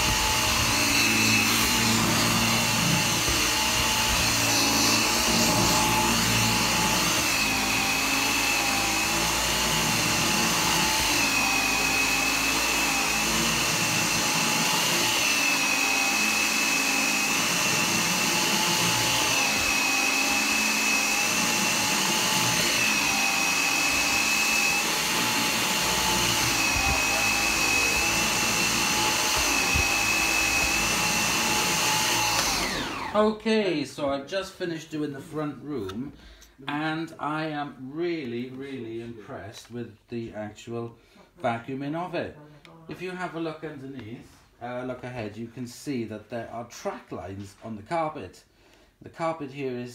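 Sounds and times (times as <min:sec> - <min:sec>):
vacuum cleaner whine: 0:00.0 - 0:33.3.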